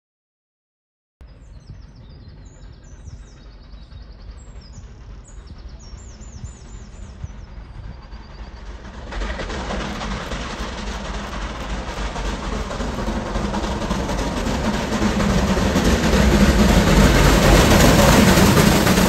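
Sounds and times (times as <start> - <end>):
low rumble: 1.2 - 19.0
steam train rushing: 1.2 - 19.0
small birds chirping: 1.3 - 9.0.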